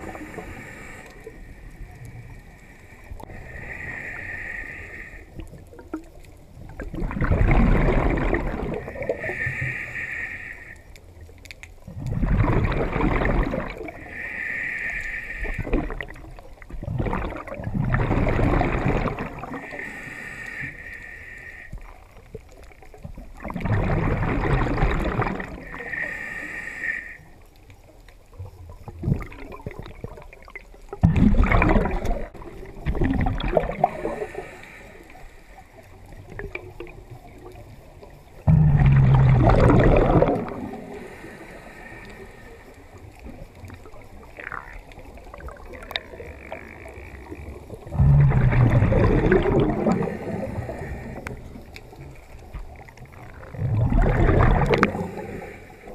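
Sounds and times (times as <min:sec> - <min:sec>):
regulator hissing inhale: 0:00.0 - 0:05.4, 0:08.8 - 0:11.0, 0:13.9 - 0:15.9, 0:19.5 - 0:22.1, 0:25.4 - 0:27.5, 0:33.7 - 0:36.2, 0:40.7 - 0:44.0, 0:49.2 - 0:52.6, 0:54.6 - 0:55.9
exhaled bubbles bubbling: 0:04.9 - 0:09.7, 0:11.8 - 0:14.3, 0:15.4 - 0:19.9, 0:21.9 - 0:26.1, 0:28.4 - 0:55.9.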